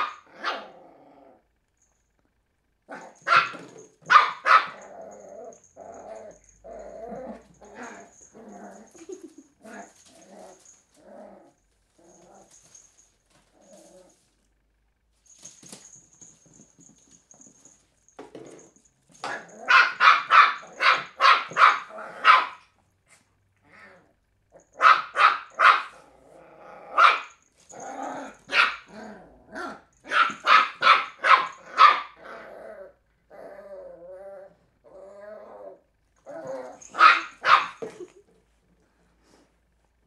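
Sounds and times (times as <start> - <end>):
puppy barking: 0.0 - 0.6, 3.0 - 4.8, 19.2 - 22.7, 24.6 - 26.0, 27.0 - 27.4, 28.4 - 28.9, 30.0 - 32.2, 36.7 - 38.0.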